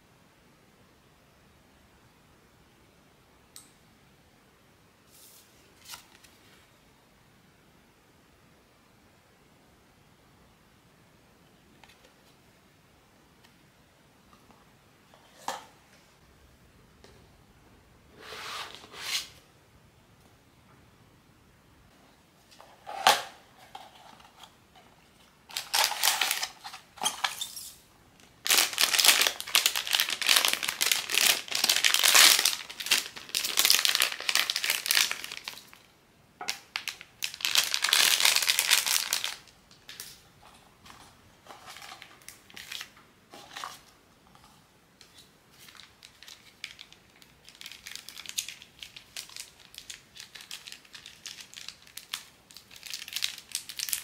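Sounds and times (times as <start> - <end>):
packaging crinkling and rustling: 25.5 - 35.9, 36.5 - 40.2, 40.8 - 43.9, 45.0 - 54.0.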